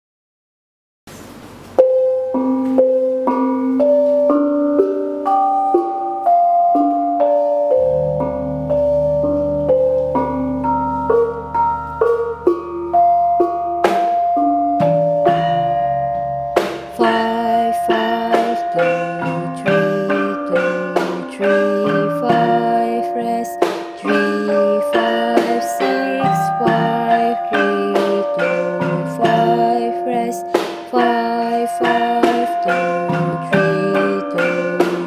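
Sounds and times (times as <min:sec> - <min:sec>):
gamelan gongs playing melody: 0:01.8 - 0:35.0
deep low ringing: 0:06.8 - 0:25.2.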